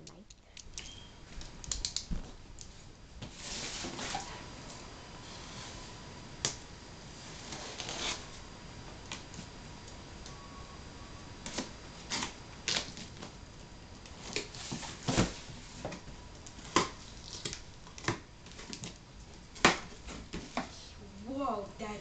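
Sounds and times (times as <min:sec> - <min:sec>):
cardboard flaps pulled apart: 0:03.2 - 0:04.5, 0:07.4 - 0:08.2, 0:14.2 - 0:16.0
knife slitting packing tape: 0:07.5 - 0:08.2.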